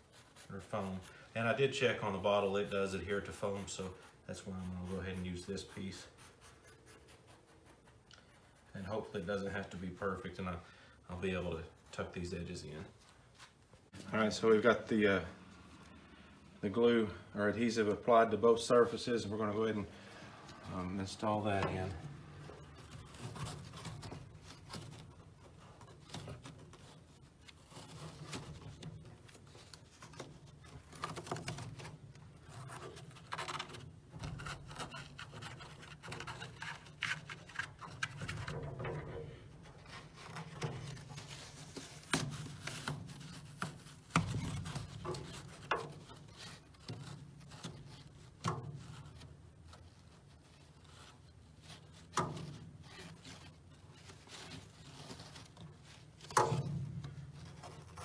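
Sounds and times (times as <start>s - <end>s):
hands rubbing foam: 0.0s - 16.8s, 39.4s - 56.3s.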